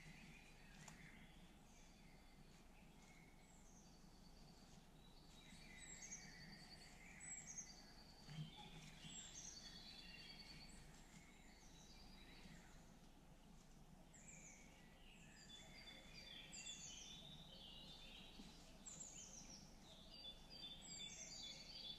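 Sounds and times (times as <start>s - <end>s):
low background hiss: 0.0s - 21.9s
songbirds singing: 0.0s - 21.9s.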